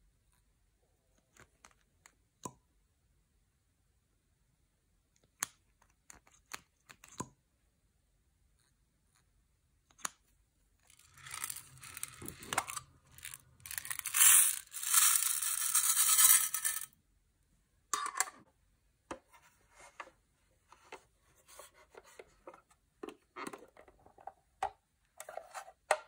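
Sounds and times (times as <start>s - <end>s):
plastic beads pouring into glass dish: 10.9s - 16.9s.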